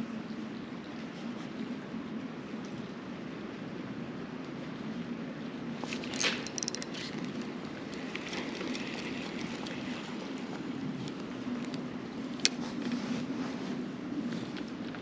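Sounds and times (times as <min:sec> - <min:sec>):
creek flowing: 0:05.6 - 0:14.9
fishing reel clicks and rattles: 0:05.9 - 0:10.4.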